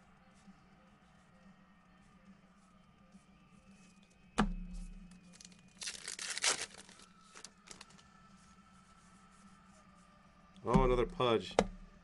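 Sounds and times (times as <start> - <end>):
foil wrapper tearing and crinkling: 5.3 - 8.0.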